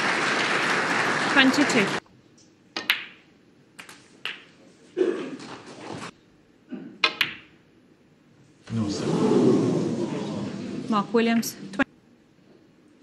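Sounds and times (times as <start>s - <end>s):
snooker balls knocking together: 2.8s - 3.2s, 7.0s - 7.5s.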